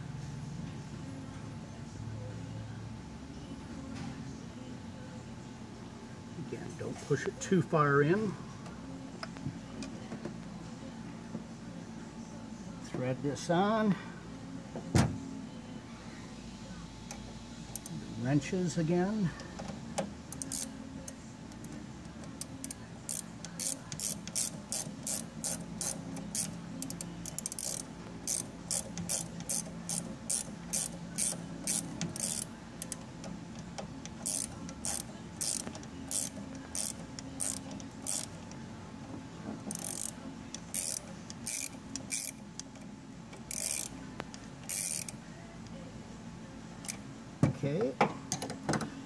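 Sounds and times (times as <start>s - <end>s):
ratcheting wrench clicking: 20.3s - 20.7s, 22.4s - 33.0s, 33.8s - 38.6s, 39.7s - 42.8s, 43.4s - 43.9s, 44.6s - 45.2s.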